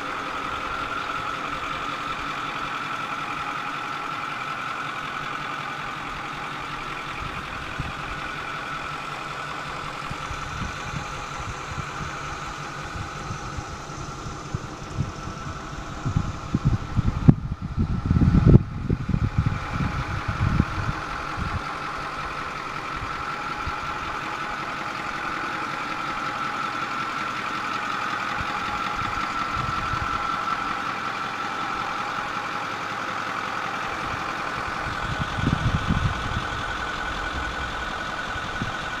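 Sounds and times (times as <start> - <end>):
pickup engine idling: 0.0 - 39.0
wind buffeting microphone: 9.9 - 21.7, 28.4 - 30.2, 34.0 - 39.0.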